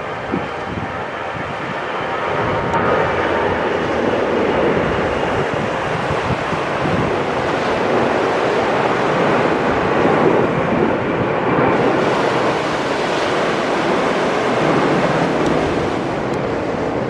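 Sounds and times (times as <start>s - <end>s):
jet airliner engines roaring: 0.0s - 17.0s.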